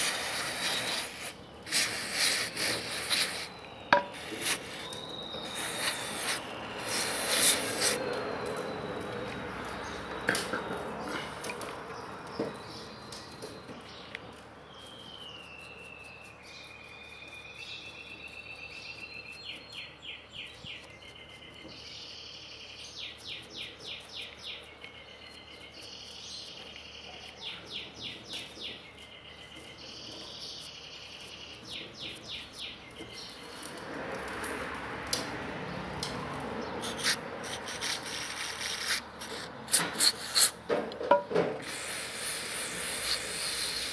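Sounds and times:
scrubbing small parts by hand: 0:00.0 - 0:08.0, 0:36.8 - 0:40.6, 0:41.6 - 0:43.9
songbird singing: 0:00.0 - 0:34.6, 0:35.2 - 0:43.9.

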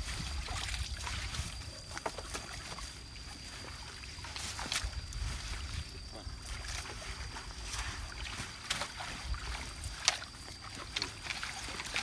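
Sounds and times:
wind rumble on microphone: 0:00.0 - 0:02.0, 0:03.4 - 0:10.0
water splashing and dripping: 0:00.0 - 0:12.0.

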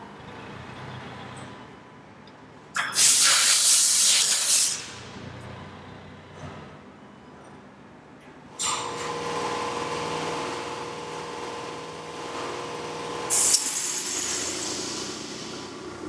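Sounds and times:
burst of exhaust air: 0:02.8 - 0:05.1, 0:13.3 - 0:15.9.

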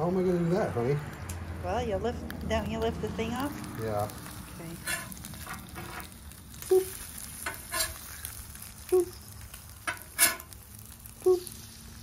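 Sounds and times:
eggs and batter sizzling on griddle: 0:00.0 - 0:12.0
metal spatula scraping griddle: 0:04.7 - 0:06.2, 0:07.0 - 0:08.4, 0:09.7 - 0:11.0.

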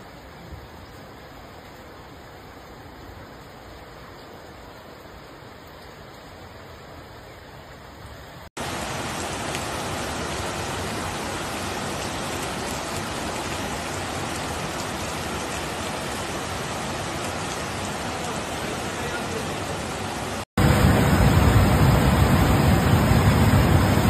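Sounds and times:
rain: 0:00.0 - 0:24.0
flood torrent rushing: 0:08.5 - 0:24.0.

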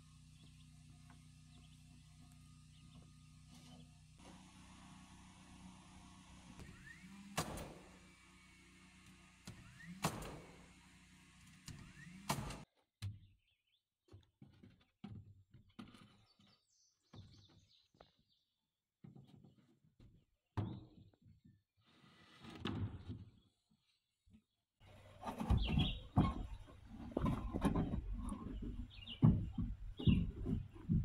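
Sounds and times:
power tool knocks fastening boards: 0:06.6 - 0:08.0, 0:09.4 - 0:12.6
boards being handled: 0:24.9 - 0:31.0.

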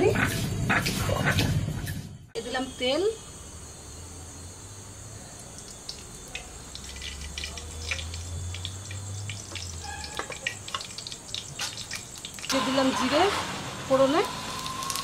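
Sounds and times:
oil crackling in a hot pan: 0:05.4 - 0:13.0, 0:14.0 - 0:15.0
oil pouring into a pan: 0:05.6 - 0:12.6.

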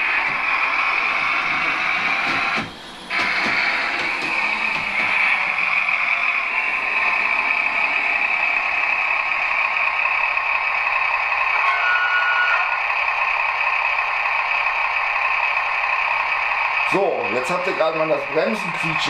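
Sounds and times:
model railcar engine sound: 0:00.0 - 0:19.0
high brake squeal: 0:11.6 - 0:12.8.

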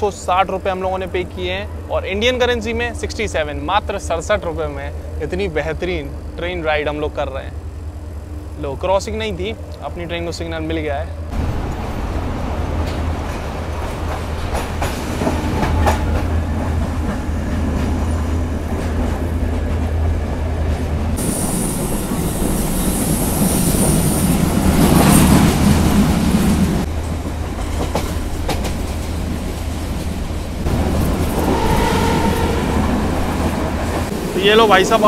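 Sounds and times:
train rumbling at speed: 0:00.0 - 0:35.0
wheels clacking over rail joints: 0:11.4 - 0:21.0, 0:24.3 - 0:35.0
high hissing rush: 0:21.2 - 0:26.9.

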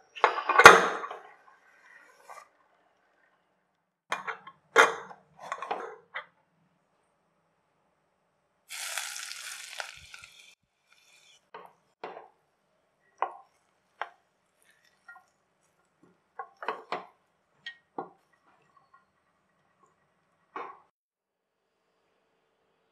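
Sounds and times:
nuts sizzling in hot fat: 0:08.7 - 0:11.5.

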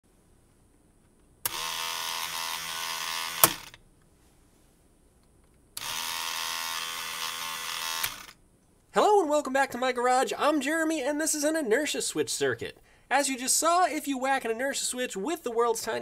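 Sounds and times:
electric fuel pump whining: 0:01.4 - 0:03.8, 0:05.8 - 0:08.4.

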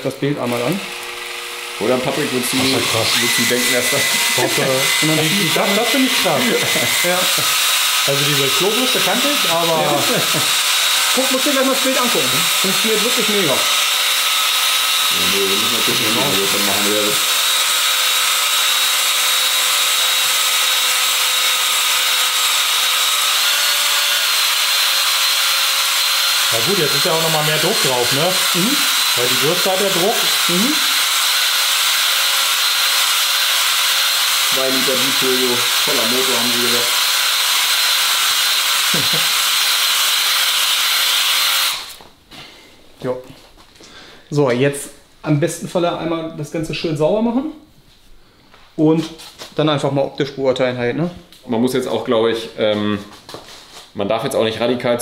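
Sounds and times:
drill motor whine: 0:00.4 - 0:42.0.

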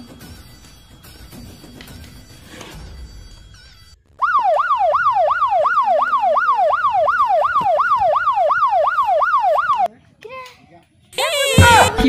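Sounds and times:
electronic siren yelping: 0:03.6 - 0:09.9.

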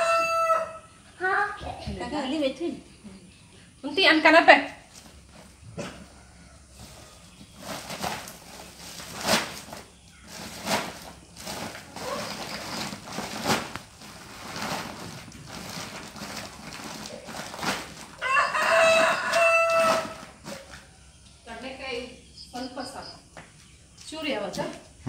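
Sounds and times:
rooster crowing: 0:00.0 - 0:01.0, 0:05.8 - 0:07.4, 0:18.2 - 0:20.5
plastic sack rustling: 0:06.8 - 0:20.7.

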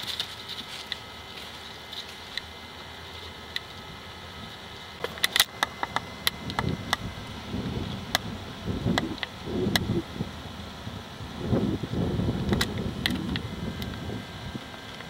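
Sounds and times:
camera handling thumps and rumbles: 0:05.0 - 0:07.1, 0:12.4 - 0:14.0.

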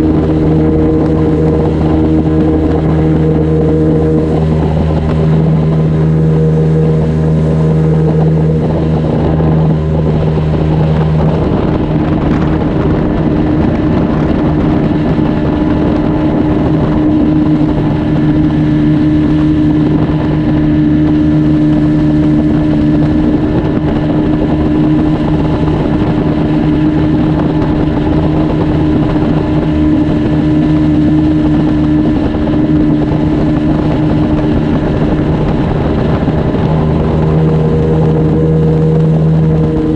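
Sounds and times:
outboard motor running: 0:00.0 - 0:39.9.

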